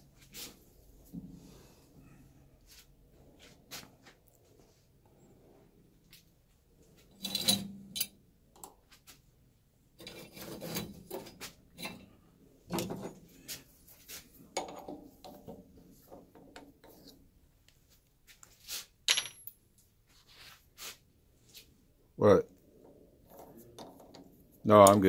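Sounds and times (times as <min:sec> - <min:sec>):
metal tools knocking and clinking: 0:07.2 - 0:08.2, 0:19.1 - 0:19.6.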